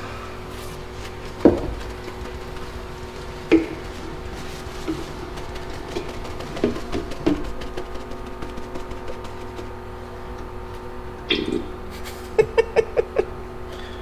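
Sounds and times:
steady workshop hum: 0.0 - 14.0
cloth rubbing on metal: 0.2 - 10.1.

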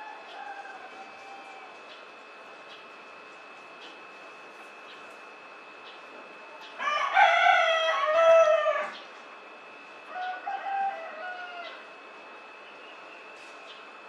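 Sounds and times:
rooster crowing: 0.0 - 1.8, 6.8 - 9.0, 10.1 - 11.9.

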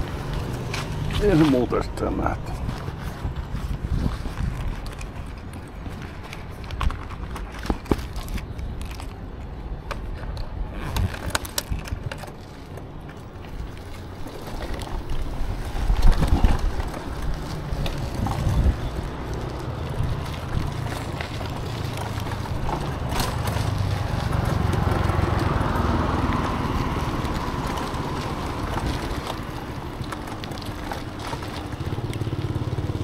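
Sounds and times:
road rumble: 0.0 - 33.0
wind on microphone: 2.4 - 8.4, 13.6 - 30.1.

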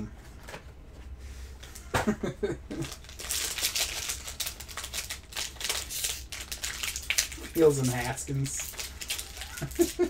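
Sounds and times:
foil wrapper crinkling: 2.8 - 10.0.

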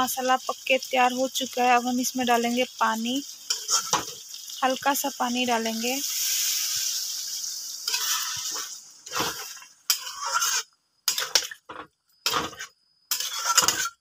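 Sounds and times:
water sizzling in hot pan: 0.0 - 14.0
metal spatula scraping pan: 3.5 - 4.2, 7.8 - 14.0.

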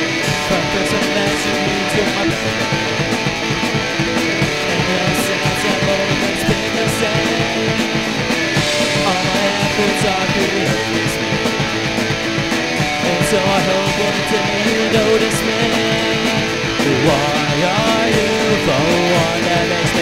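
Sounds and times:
strummed electric guitar: 0.0 - 20.0.

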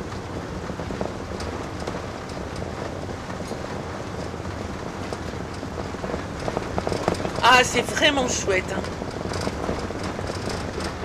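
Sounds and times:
engine and tyre noise: 0.0 - 11.0.

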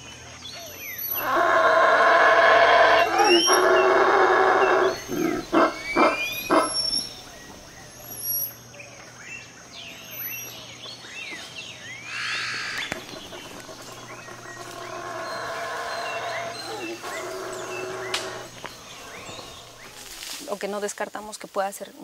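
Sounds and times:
howler monkey roaring: 1.0 - 8.2, 12.1 - 20.4
high chirps: 4.6 - 8.6.

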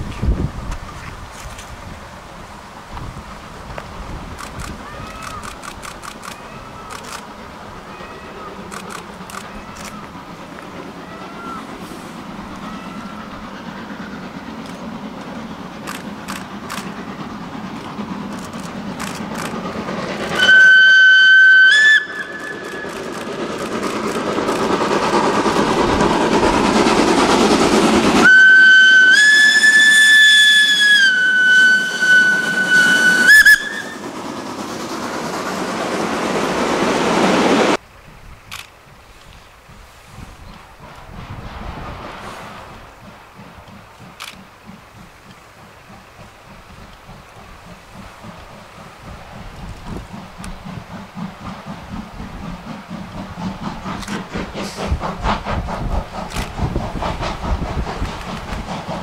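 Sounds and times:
steam locomotive passing: 0.0 - 59.0
steam whistle blasts: 20.3 - 23.1, 28.2 - 34.1.

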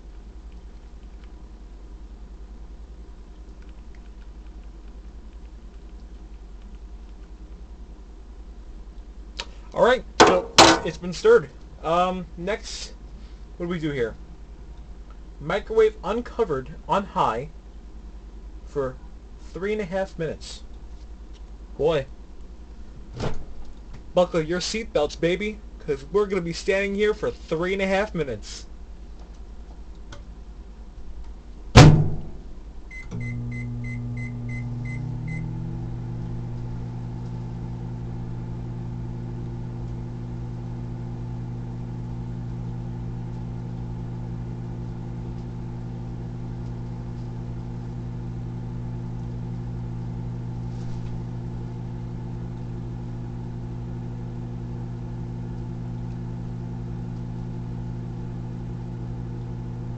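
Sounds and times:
microwave humming: 0.0 - 12.4, 28.8 - 59.9
microwave door shutting: 31.8 - 32.4.

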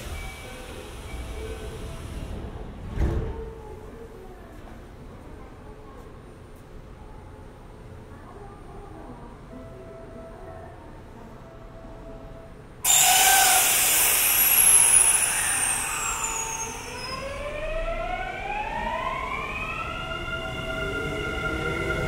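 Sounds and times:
electric train running noise: 12.8 - 22.0
traction motor whine rising: 12.9 - 22.0.

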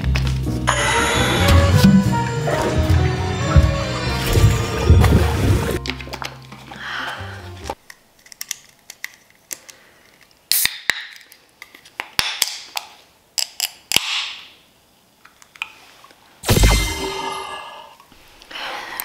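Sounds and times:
can opening pop and fizz: 10.5 - 11.3.

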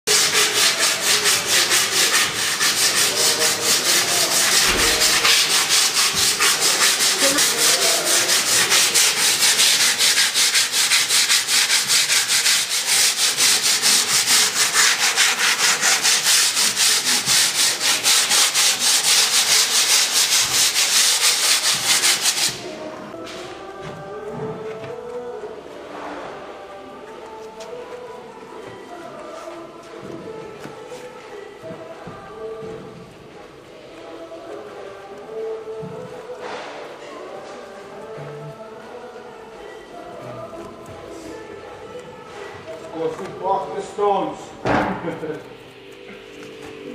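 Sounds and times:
sandpaper rasping on fibreglass: 0.1 - 22.6.

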